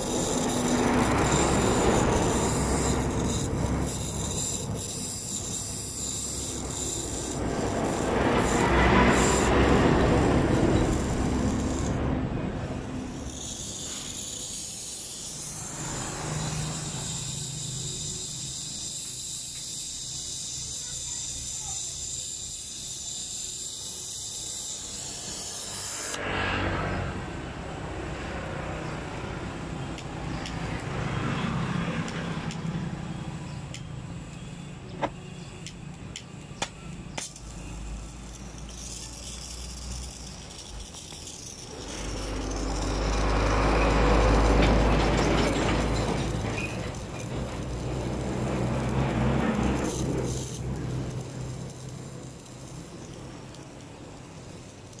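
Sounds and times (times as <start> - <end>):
torch flame hissing: 0.0 - 55.0
sharp clicks: 29.9 - 31.0.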